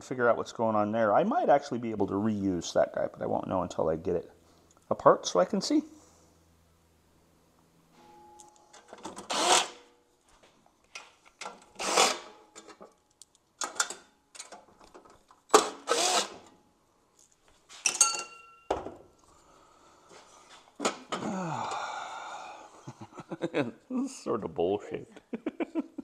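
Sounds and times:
cordless drill whining: 9.2s - 9.8s, 11.8s - 12.3s, 15.6s - 16.4s.

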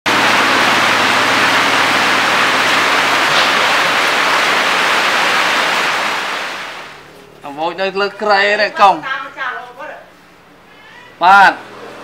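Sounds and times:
heavy rain pouring: 0.0s - 7.0s.

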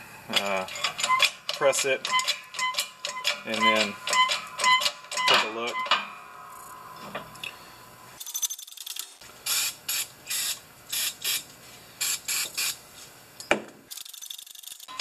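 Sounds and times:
short hissing bursts: 9.4s - 11.4s, 12.0s - 12.8s.

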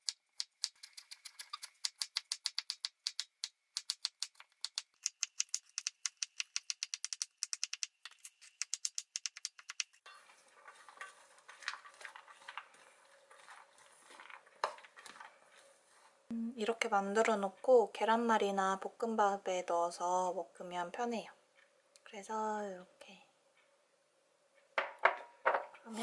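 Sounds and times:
vegetables stirred in metal bowl: 10.0s - 16.1s.

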